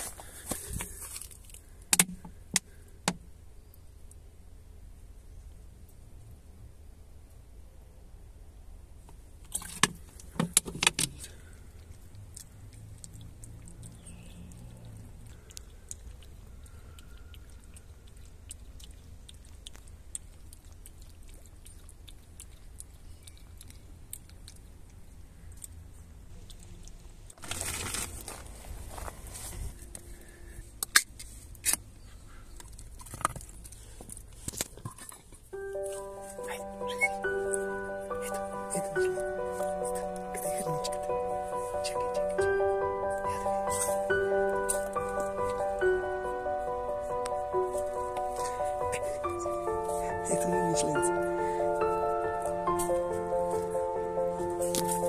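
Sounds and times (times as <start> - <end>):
handling and rustling: 0.0 - 2.3, 27.4 - 30.4
puppy lapping water: 11.9 - 24.9.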